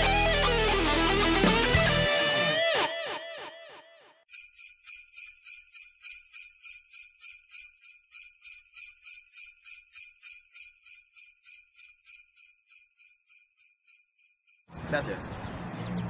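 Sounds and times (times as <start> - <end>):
sleigh bells shaken: 4.3 - 16.0.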